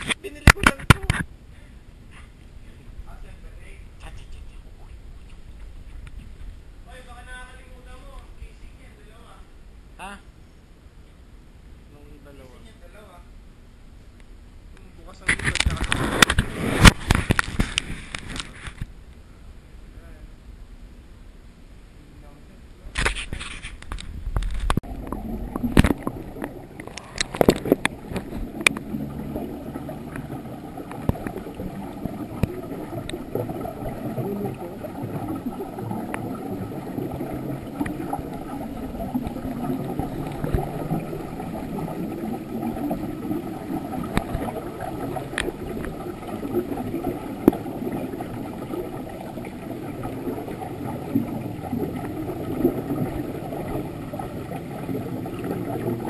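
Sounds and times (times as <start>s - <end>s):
underwater low rumble: 23.9s - 56.0s
gurgling bubbles: 24.8s - 56.0s.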